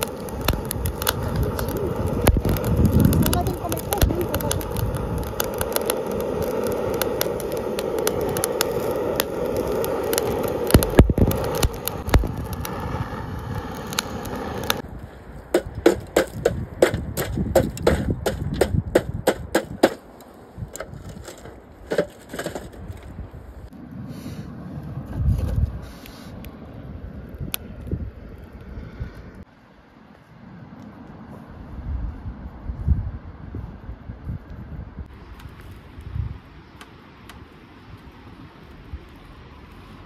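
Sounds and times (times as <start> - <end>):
torch flame hissing: 0.0 - 21.8
coals crackling and popping: 0.0 - 31.6, 34.2 - 40.0.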